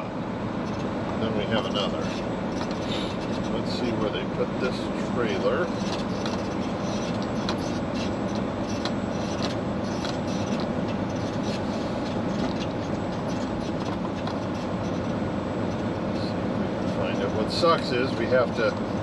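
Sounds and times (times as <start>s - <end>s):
diesel truck engine rumble: 0.0s - 19.0s.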